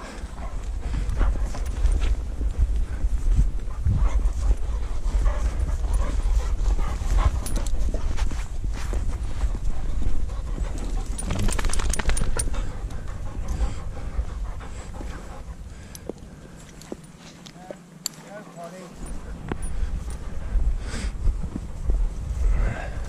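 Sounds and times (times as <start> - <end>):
steady low rumble: 0.0 - 17.4, 18.9 - 23.0
dog panting: 0.0 - 23.0.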